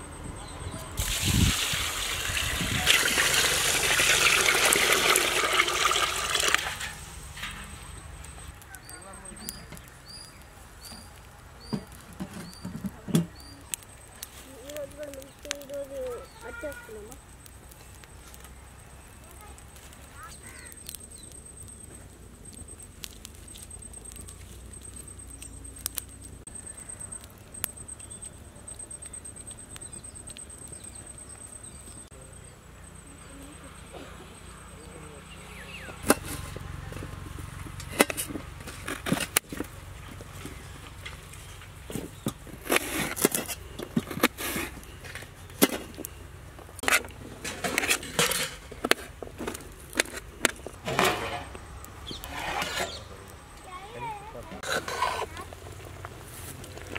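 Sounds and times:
wood fire crackling: 0:00.0 - 0:56.9
sharp pops from fire: 0:01.0 - 0:32.1, 0:35.9 - 0:53.4
knife scraping: 0:50.8 - 0:53.1, 0:54.6 - 0:55.4.

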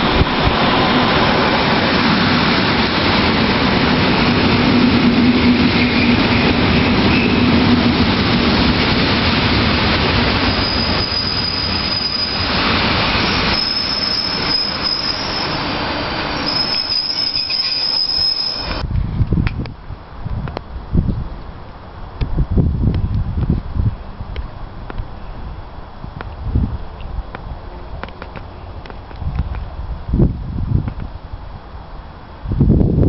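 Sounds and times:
train carriages rumbling past: 0:00.0 - 0:18.9
high-pitched wheel squeal: 0:10.4 - 0:12.6, 0:13.2 - 0:15.7, 0:16.4 - 0:18.8.

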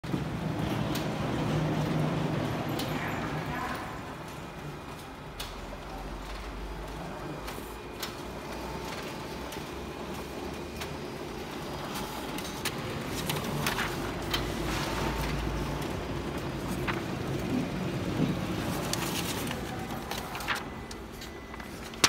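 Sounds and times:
copier mechanical hum: 0:00.0 - 0:22.0
paper sheets handled: 0:11.8 - 0:22.0.

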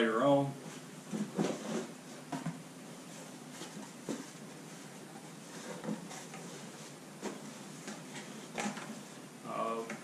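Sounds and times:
cardboard boxes knocking and rustling: 0:01.1 - 0:02.6.

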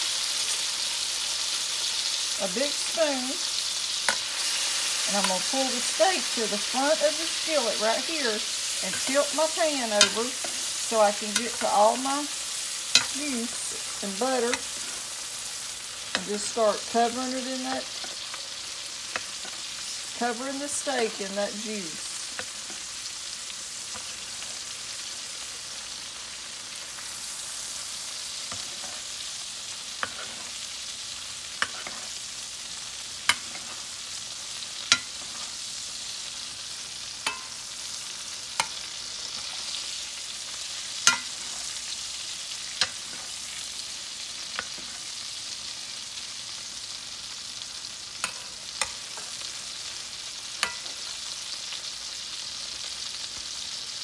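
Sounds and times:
steak sizzling in a pan: 0:00.0 - 0:54.0
metal spoon clinking on pan: 0:37.2 - 0:37.6, 0:41.0 - 0:41.4, 0:50.6 - 0:50.9.

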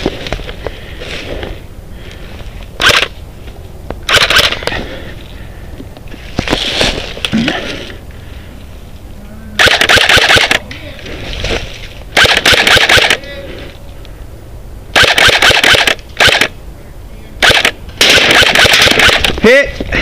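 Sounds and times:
airsoft rifle firing on full auto: 0:02.8 - 0:03.1, 0:04.1 - 0:04.6, 0:09.6 - 0:10.6, 0:12.2 - 0:13.2, 0:14.9 - 0:16.6, 0:17.4 - 0:19.4.

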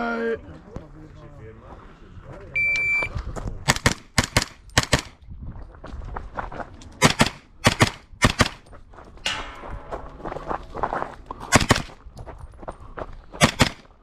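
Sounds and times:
handgun shots with echoes: 0:11.5 - 0:11.9, 0:13.4 - 0:13.9.

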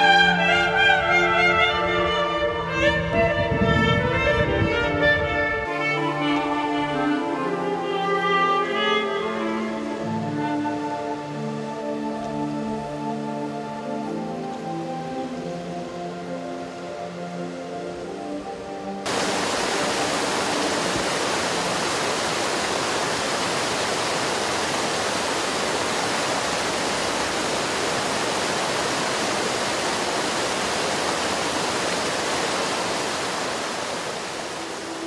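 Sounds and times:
water rushing over rocks: 0:19.0 - 0:35.0.

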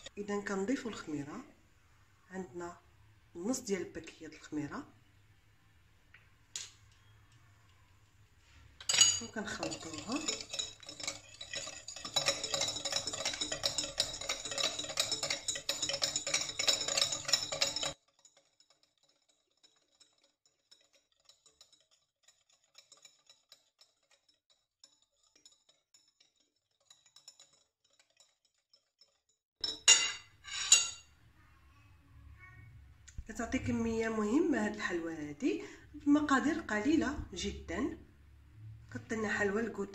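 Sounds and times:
whisk clinking against glass bowl: 0:08.8 - 0:28.3, 0:29.6 - 0:31.1.

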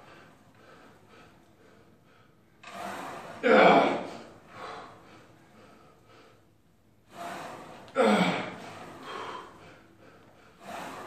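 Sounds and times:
forceful breathing exhales: 0:02.6 - 0:06.4, 0:07.0 - 0:11.0.

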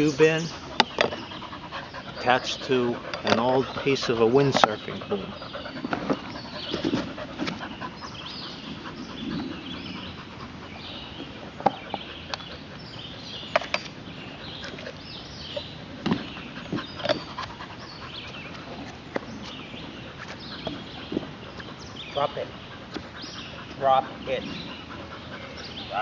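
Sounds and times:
dogs panting: 0:00.0 - 0:26.0.

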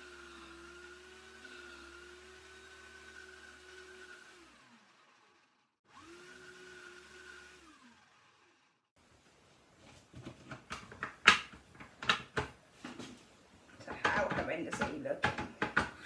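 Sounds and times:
wood lathe motor whining: 0:00.0 - 0:08.9.

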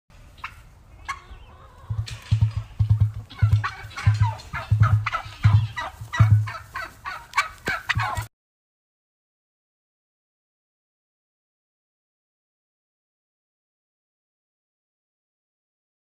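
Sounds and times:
emu drumming: 0:01.9 - 0:06.6.

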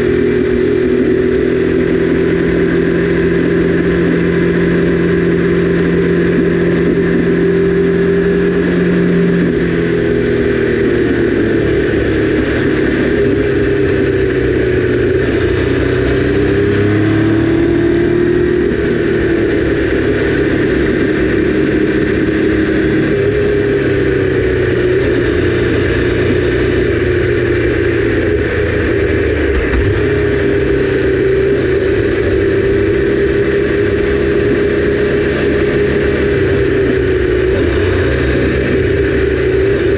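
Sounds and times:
motorcycle engine running: 0:00.0 - 0:39.9
wind rush: 0:27.9 - 0:32.9.

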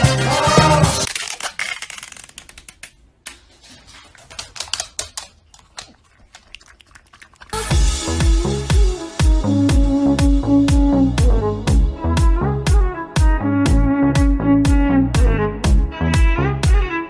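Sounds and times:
music: 0:00.0 - 0:01.1, 0:07.6 - 0:17.0
dog claws clicking on wooden floor: 0:01.1 - 0:07.5
dog licking plastic cup: 0:04.2 - 0:07.7.

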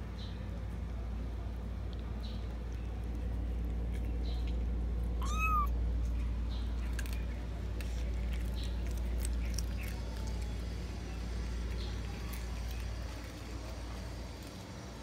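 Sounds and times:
cat meowing: 0:05.2 - 0:05.7.

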